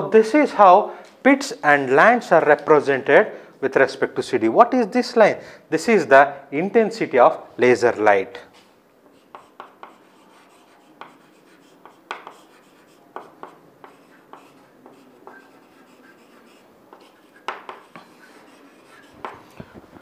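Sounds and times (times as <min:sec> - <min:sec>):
chalk tapping and scraping on chalkboard: 0:09.1 - 0:20.0.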